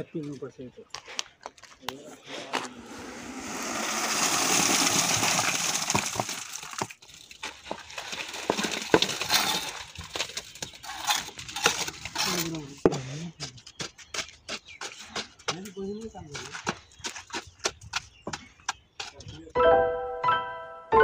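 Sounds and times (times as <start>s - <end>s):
wet concrete pouring from bucket: 2.8s - 12.5s.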